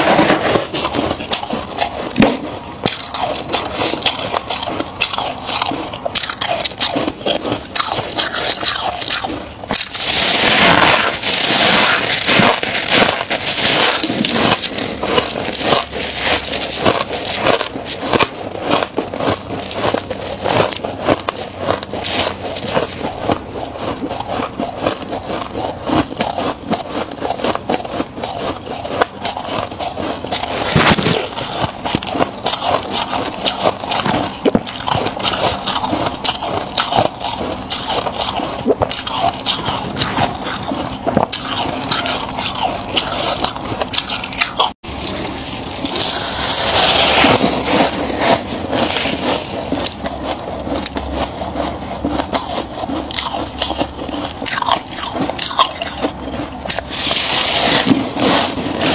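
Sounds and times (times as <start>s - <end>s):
frost being chewed: 0.0s - 58.9s
gloved hands scooping frost: 9.7s - 20.7s, 45.1s - 49.9s.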